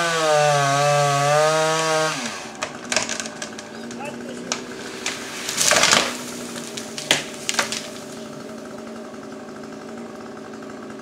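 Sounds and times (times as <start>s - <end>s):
chainsaw idling: 0.0s - 11.0s
sharp cracks: 2.2s - 8.8s
loud rustling burst: 2.4s - 9.1s.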